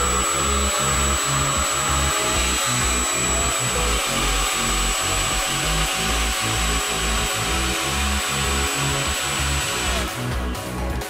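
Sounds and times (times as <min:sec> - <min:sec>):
electronic music with pulsing bass: 0:00.0 - 0:11.0.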